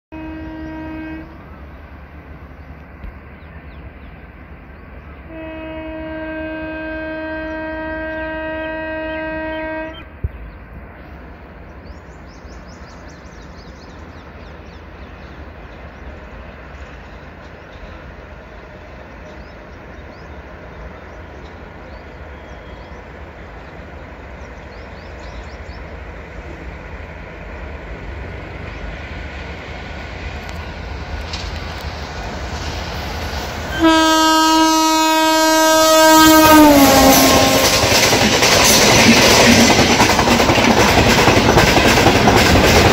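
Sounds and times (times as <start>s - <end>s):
train horn blasts: 0.1s - 1.5s, 5.3s - 10.1s, 33.7s - 38.2s
train wheels rolling on rails: 9.9s - 42.9s.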